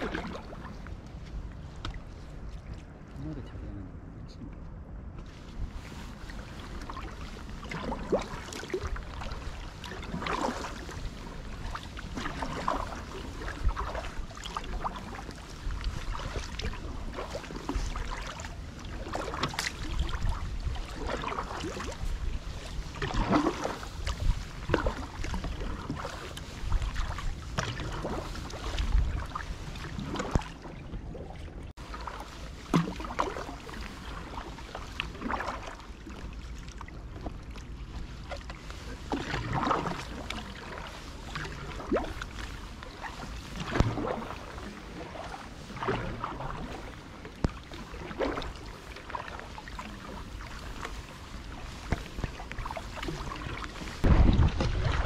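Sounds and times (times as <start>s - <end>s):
paddle strokes splashing water: 0.0s - 3.2s, 5.2s - 55.0s
low rumble: 53.4s - 55.0s.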